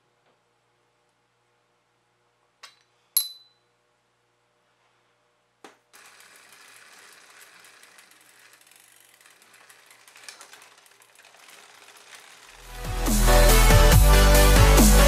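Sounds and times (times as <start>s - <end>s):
bicycle chain ticking: 6.0s - 14.0s
music: 12.6s - 15.0s.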